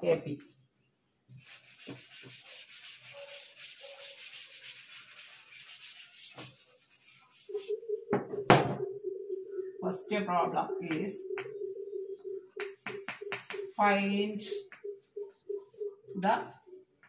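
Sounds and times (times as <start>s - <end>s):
eraser rubbing on blackboard: 1.4s - 7.8s
sharp tap: 10.9s - 11.6s, 12.6s - 13.7s.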